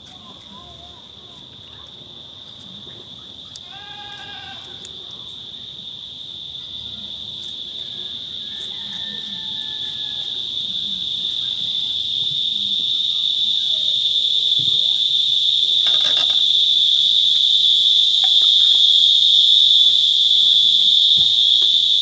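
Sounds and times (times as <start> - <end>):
high-pitched insect buzz: 6.8 - 22.0.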